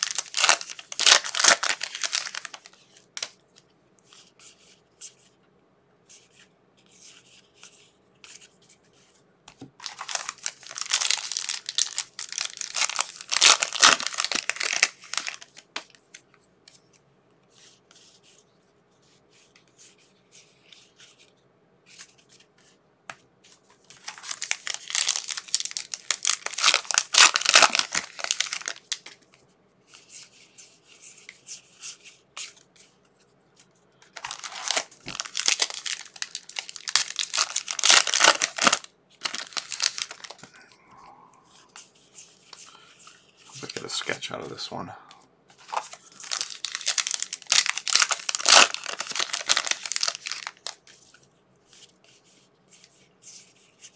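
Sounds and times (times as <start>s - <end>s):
card wrappers tearing and crinkling: 0.0s - 3.3s, 9.8s - 15.9s, 23.9s - 29.2s, 34.1s - 40.6s, 45.6s - 51.1s.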